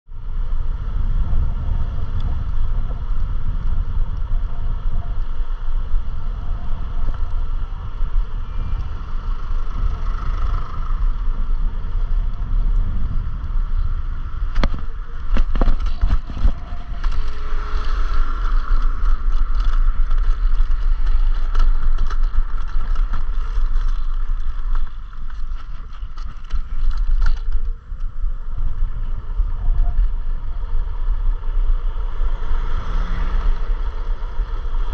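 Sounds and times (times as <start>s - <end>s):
wind and road rumble: 0.0s - 34.9s
faint steady whine: 0.1s - 34.9s.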